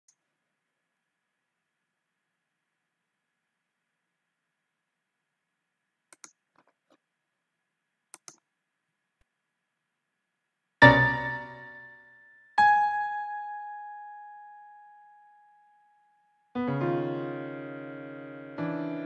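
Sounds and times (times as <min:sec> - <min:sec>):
loud piano chord: 0:10.8 - 0:12.0, 0:16.6 - 0:19.0
high piano note ringing: 0:10.8 - 0:15.8.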